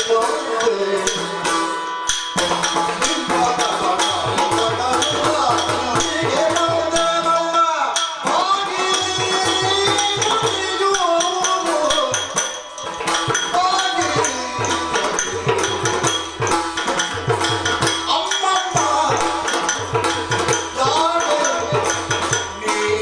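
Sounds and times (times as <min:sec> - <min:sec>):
drums playing dense rhythm: 0:00.0 - 0:23.0.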